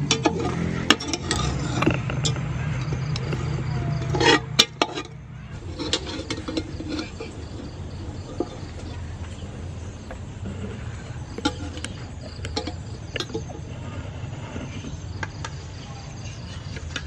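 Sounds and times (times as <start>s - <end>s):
metal ladle clinking on pot: 0.1s - 9.1s, 11.4s - 13.6s.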